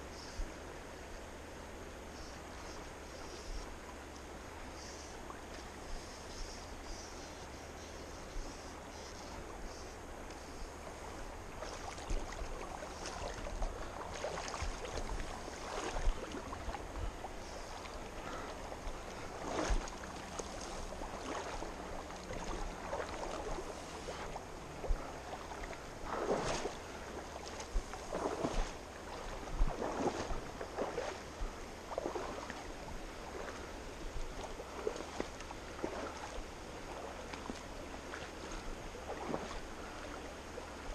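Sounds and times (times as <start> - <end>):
river water splashing and sloshing: 0.0 - 40.9
flowing river rushing: 8.5 - 40.9.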